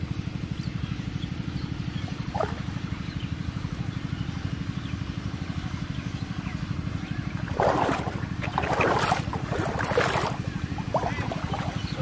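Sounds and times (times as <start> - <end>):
low engine chug: 0.0 - 12.0
water splashing: 2.2 - 2.9, 7.2 - 12.0.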